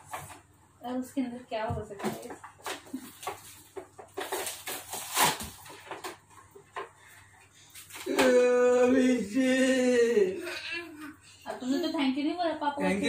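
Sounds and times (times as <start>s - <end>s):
toy packaging being handled: 2.6s - 6.3s.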